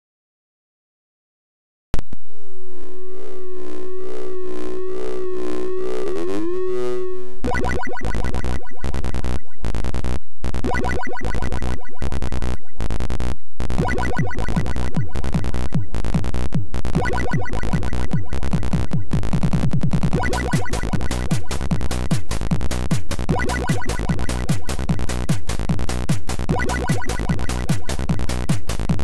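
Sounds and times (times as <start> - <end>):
wavering synth tone: 2.3 - 9.7
fast chiptune music with drums: 7.4 - 29.0.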